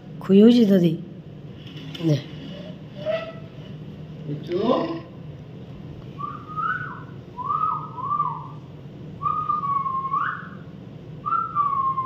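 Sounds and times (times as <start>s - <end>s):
person whistling: 6.2s - 8.6s, 9.2s - 10.6s, 11.2s - 12.0s.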